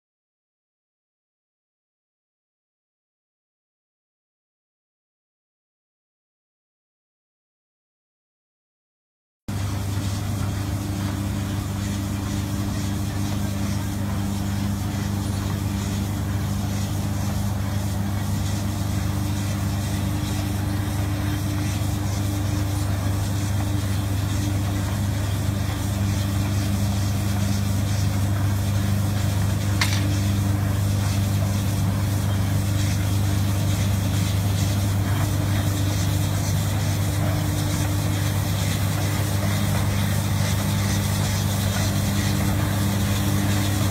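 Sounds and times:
machine engine humming: 9.5s - 43.9s.

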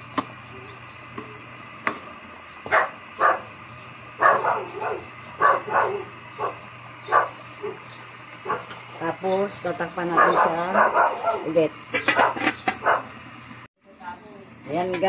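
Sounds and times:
dog barking: 2.7s - 3.5s, 4.2s - 7.8s, 8.4s - 8.7s, 10.1s - 11.5s, 12.2s - 13.1s.

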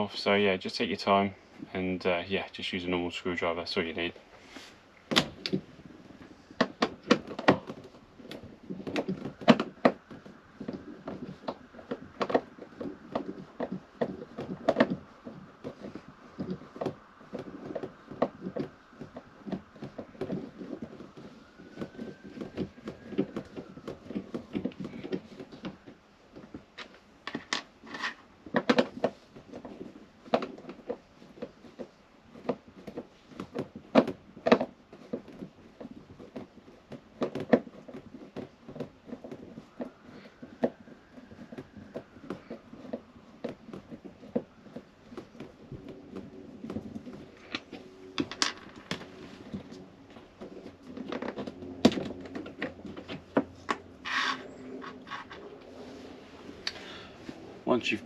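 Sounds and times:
screwdriver clicks and scrapes: 54.0s - 55.5s.

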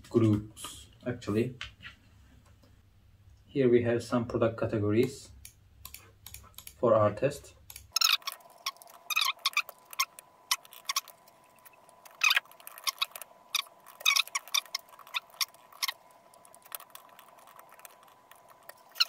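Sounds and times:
faint steady hum: 0.0s - 19.0s
laptop keyboard typing: 7.7s - 19.0s.

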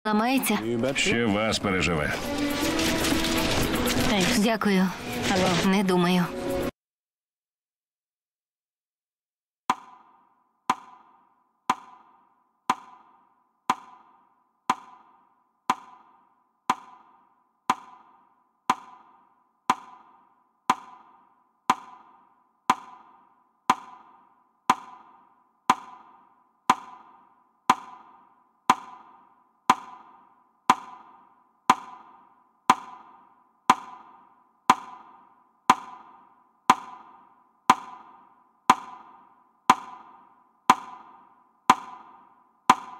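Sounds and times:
clock ticking: 10.7s - 42.9s.

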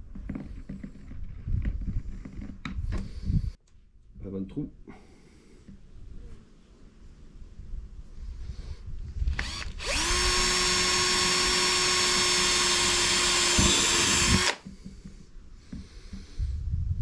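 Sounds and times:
cordless drill boring plastic: 9.3s - 14.7s.

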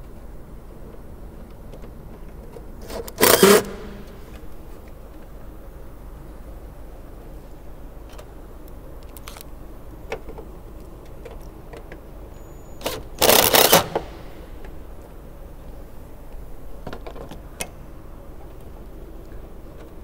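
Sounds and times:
power driver driving screw: 2.8s - 4.2s, 12.8s - 14.4s.

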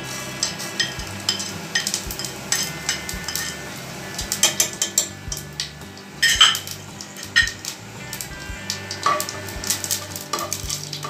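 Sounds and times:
spices sizzling in oil: 0.0s - 11.0s
spatula clinking on pot: 0.4s - 3.6s.

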